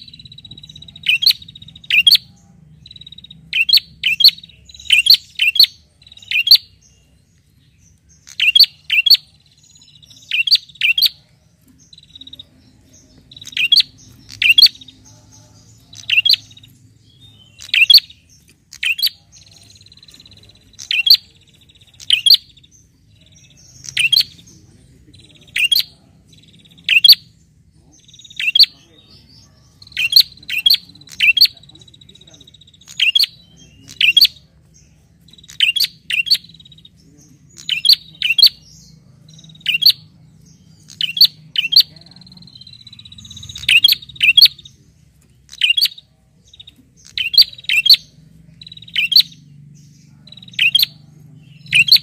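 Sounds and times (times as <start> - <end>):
bird calling sharp notes: 8.2 - 11.2, 13.2 - 15.1, 25.4 - 27.4, 28.0 - 28.8, 29.8 - 34.5, 45.5 - 49.5.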